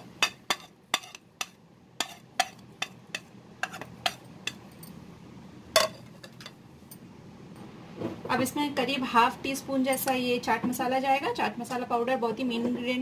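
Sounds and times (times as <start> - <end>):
utensil tapping steel bowl: 0.0 - 4.6.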